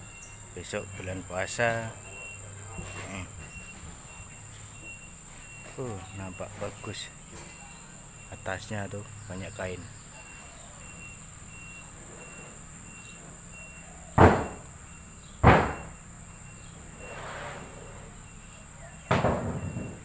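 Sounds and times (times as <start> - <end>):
faint high chirp: 0.0 - 20.0
loud sharp knocks: 14.2 - 14.7, 15.4 - 16.0, 19.0 - 20.0.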